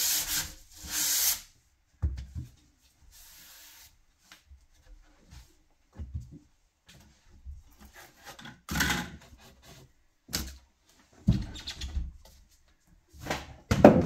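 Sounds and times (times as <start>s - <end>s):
sandpaper rubbing on wood: 0.0s - 1.5s.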